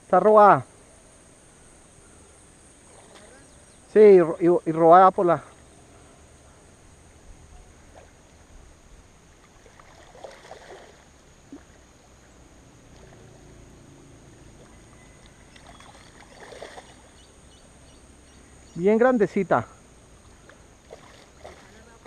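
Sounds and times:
faint water sounds: 0.0 - 22.0
soft splashes: 2.8 - 3.6, 7.6 - 8.5, 9.3 - 12.0, 14.2 - 17.4, 20.0 - 22.0.

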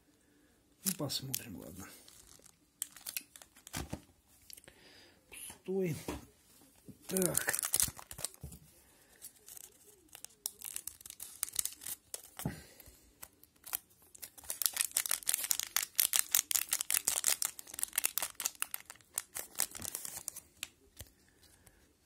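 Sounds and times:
wrapper crinkling: 0.8 - 4.6, 7.0 - 12.5, 13.2 - 21.1
scissors cutting wrapper: 2.1 - 3.8, 7.1 - 8.4, 9.4 - 12.4, 13.2 - 20.7.

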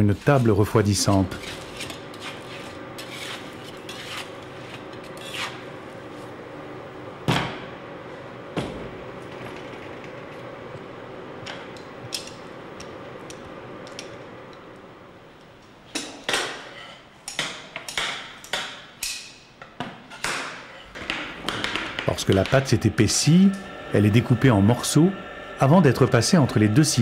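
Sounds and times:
steady hum: 0.8 - 15.9, 20.9 - 27.0
metal knife scraping on table: 1.3 - 5.6.

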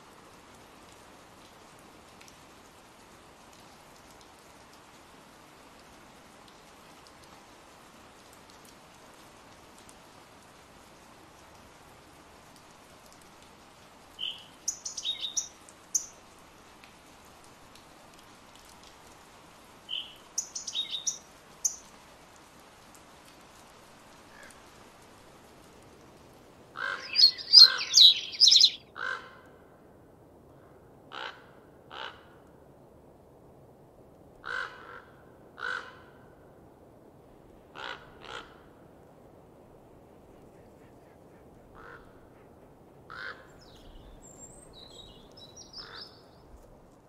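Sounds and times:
faint steady hiss: 0.0 - 47.0
bird chirping song: 14.2 - 16.1, 19.9 - 21.8, 26.8 - 28.9, 43.5 - 46.4
harsh bird calls: 26.8 - 28.8, 44.8 - 46.2.

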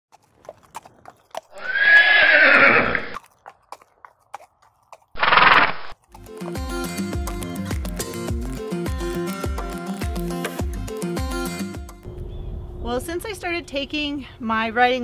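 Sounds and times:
horse whinnying: 1.5 - 3.2, 5.2 - 5.9.

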